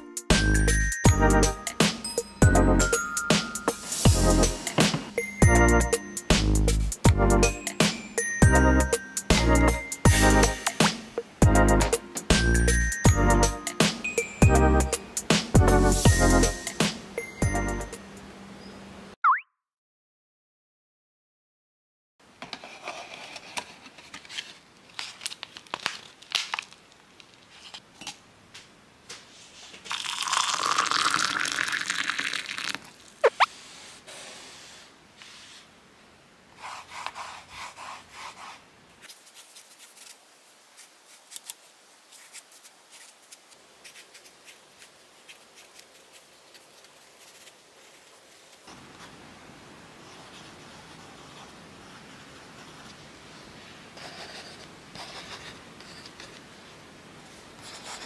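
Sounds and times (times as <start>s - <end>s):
liquid pouring into mug: 29.9s - 33.0s
pencil scratching on paper: 36.6s - 40.1s, 54.0s - 56.4s, 57.6s - 58.0s.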